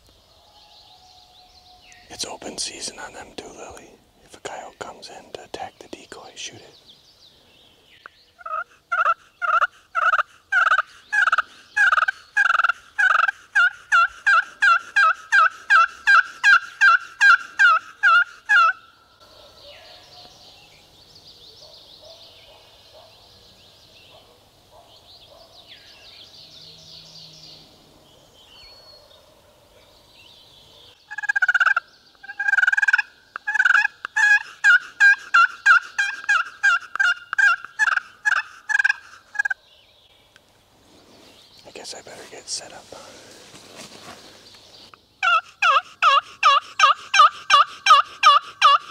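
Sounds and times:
turkey yelping: 8.4 - 18.8, 31.1 - 39.6, 45.2 - 48.9.

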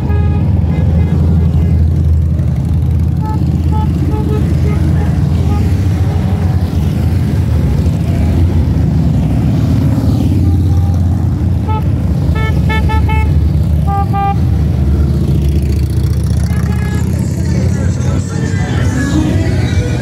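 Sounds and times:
horn toots: 0.0 - 1.3, 3.1 - 6.2, 10.4 - 14.6, 16.4 - 17.5
motorcycles rumbling past: 0.6 - 20.0.

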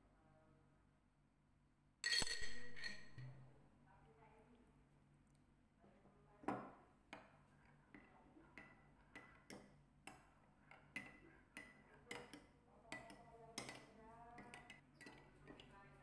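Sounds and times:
metal spoon clinking in bowl: 2.0 - 3.4.

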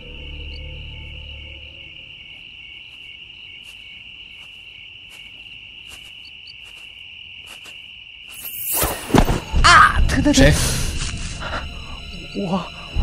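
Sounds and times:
low music drone: 0.0 - 2.2
crickets chirping: 0.0 - 13.0.

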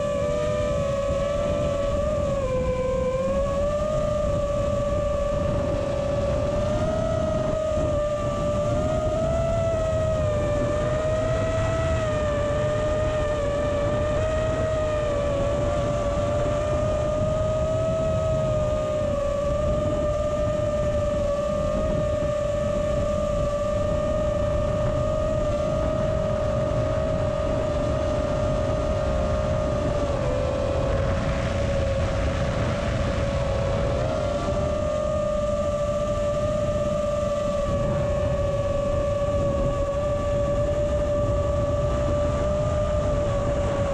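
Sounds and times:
drone motors whining: 0.0 - 43.9.

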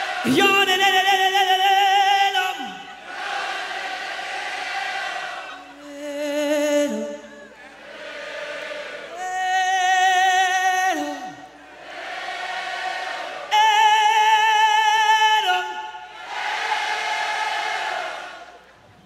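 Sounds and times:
crowd singing: 0.0 - 18.7
man singing into microphone: 0.2 - 3.0, 5.6 - 7.6, 9.1 - 11.6, 13.5 - 16.1.

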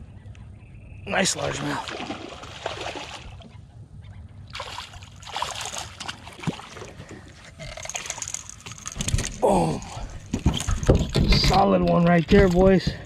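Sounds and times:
fish splashing and thrashing: 1.6 - 3.5, 4.5 - 11.2.

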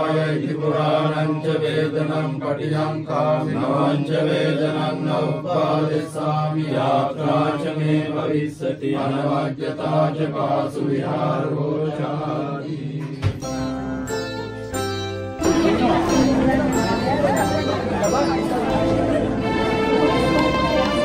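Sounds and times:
voices chanting together: 0.0 - 13.5.

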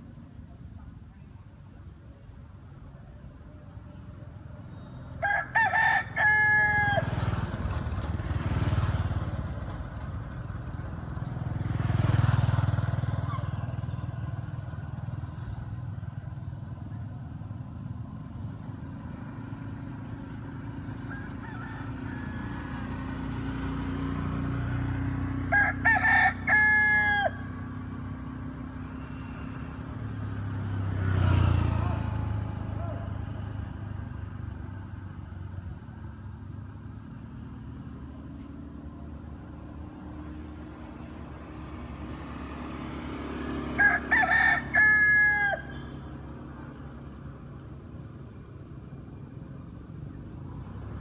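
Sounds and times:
traffic passing: 0.0 - 51.0
rooster crowing: 4.7 - 7.7, 20.6 - 24.1, 24.8 - 28.0, 43.4 - 46.8.

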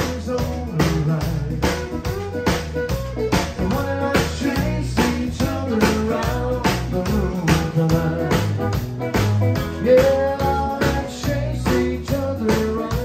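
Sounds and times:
drum kit beat: 0.0 - 13.0
electric bass: 0.0 - 13.0
electric guitar: 0.0 - 13.0
fiddle: 1.8 - 4.6.

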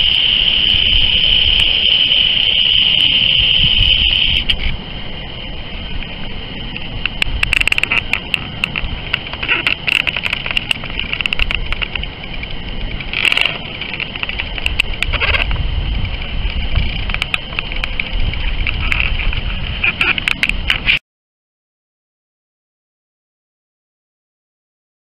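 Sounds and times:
crackling clicks: 0.0 - 4.8, 6.7 - 21.0
wind on microphone: 0.0 - 21.0.

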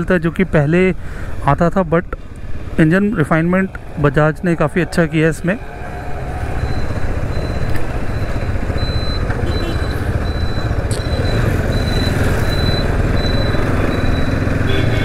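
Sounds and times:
wind and road noise: 0.0 - 15.0.

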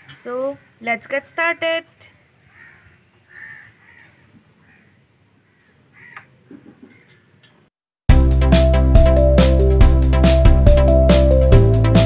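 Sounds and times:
crows cawing faintly: 2.4 - 7.5.

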